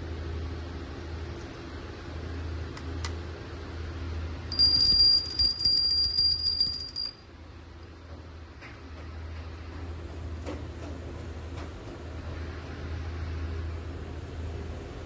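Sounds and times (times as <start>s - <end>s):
bell ringing rapidly: 4.5s - 7.2s.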